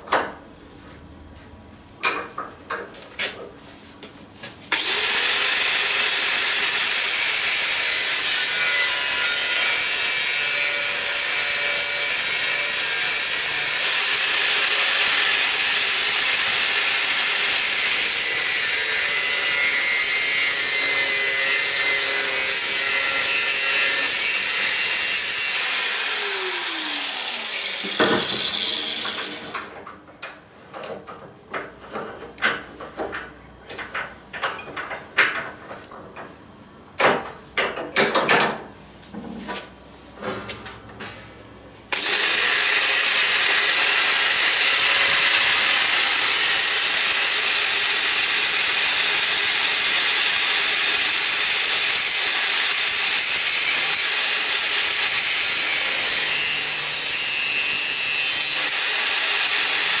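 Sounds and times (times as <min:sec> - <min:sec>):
angle grinder grinding steel: 0:04.7 - 0:29.6, 0:42.0 - 1:00.0.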